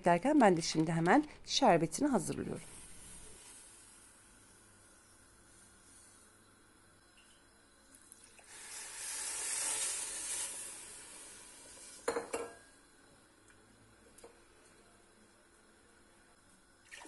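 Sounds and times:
sugar pouring into metal pot: 2.4 - 6.2, 8.4 - 12.1.

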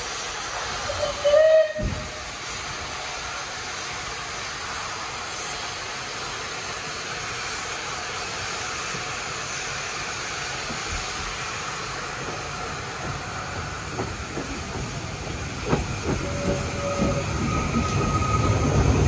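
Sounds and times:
steam train hissing and rumbling: 0.0 - 19.0
steam whistle blast: 0.9 - 2.3.

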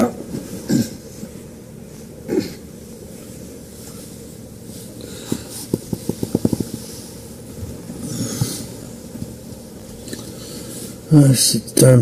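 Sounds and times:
space heater humming: 0.0 - 12.0.

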